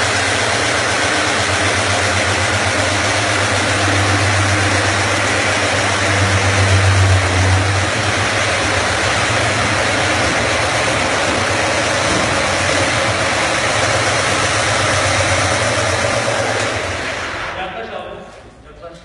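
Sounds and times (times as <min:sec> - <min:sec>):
stone polishing machine grinding: 0:00.0 - 0:17.5
low motor hum: 0:00.0 - 0:17.6.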